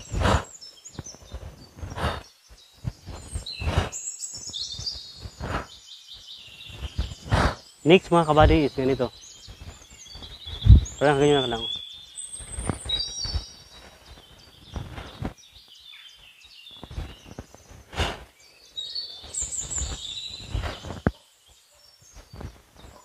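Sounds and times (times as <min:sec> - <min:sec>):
birds whistling: 0:00.0 - 0:23.0.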